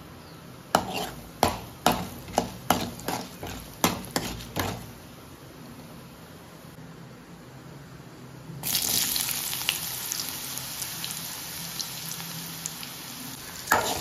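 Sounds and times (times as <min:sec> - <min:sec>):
spatula knocking metal pan: 0:00.8 - 0:04.9
lentils stirred in hot oil: 0:00.8 - 0:05.0, 0:13.4 - 0:14.0.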